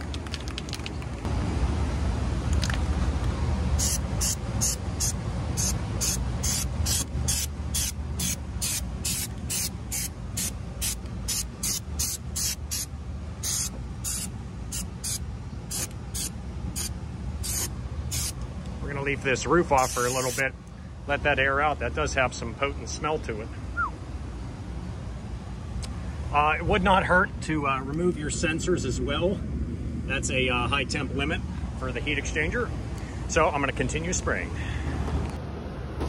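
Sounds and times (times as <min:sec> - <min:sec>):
steady low rumble: 0:00.0 - 0:35.9
aerosol can hissing: 0:03.8 - 0:18.4, 0:19.8 - 0:20.4.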